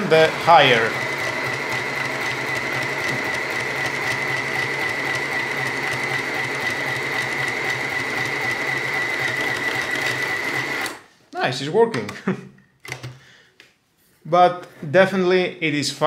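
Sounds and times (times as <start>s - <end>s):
sewing machine whining: 0.0s - 11.1s.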